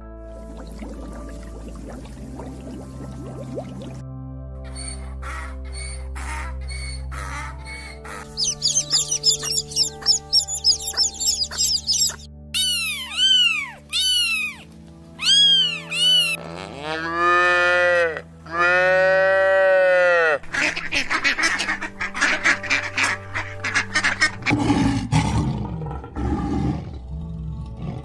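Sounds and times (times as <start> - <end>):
soft background music: 0.0 - 28.0
ducks quacking: 6.2 - 14.6, 20.2 - 24.6
lion roaring: 24.5 - 28.0.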